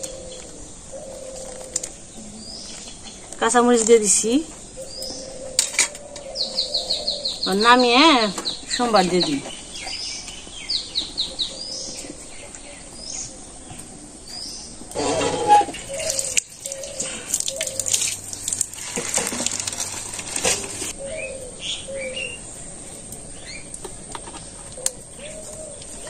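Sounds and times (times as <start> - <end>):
small birds chirping: 0.0 - 26.0
liquid pouring and splashing: 15.7 - 20.9.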